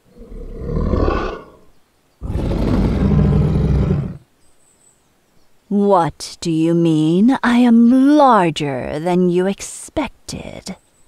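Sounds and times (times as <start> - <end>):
dragon roar: 0.0 - 4.2.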